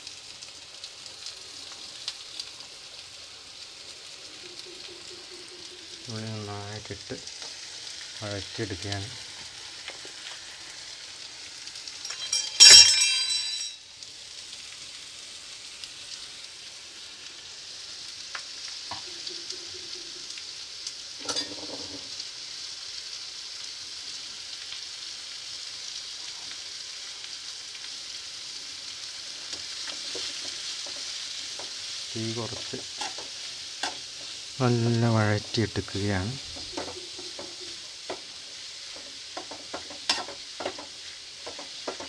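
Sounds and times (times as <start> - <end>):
onions sizzling in oil: 0.0 - 42.0
metallic clatter with ringing: 12.0 - 13.8.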